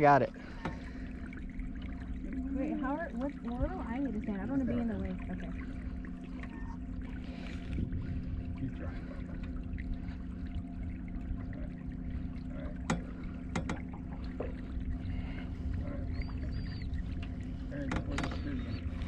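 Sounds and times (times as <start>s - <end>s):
boat motor humming: 0.0s - 19.0s
wind and water rumble: 0.0s - 19.0s.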